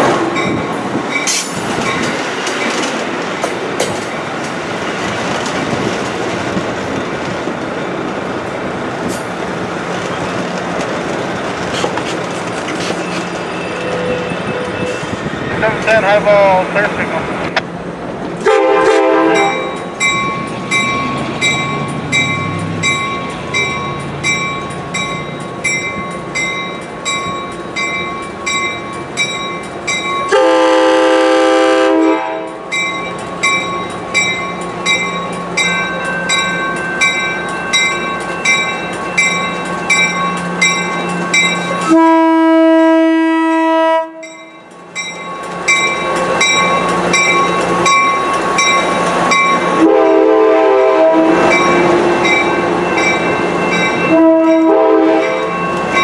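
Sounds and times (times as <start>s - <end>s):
train bell dinging: 0.0s - 2.9s, 19.3s - 30.8s, 32.0s - 42.3s, 44.2s - 50.0s, 51.4s - 56.0s
train wheel and rail noise: 0.0s - 56.0s
train horn blasts: 18.4s - 19.8s, 30.3s - 32.6s, 41.8s - 44.4s, 49.8s - 51.6s, 54.1s - 55.5s.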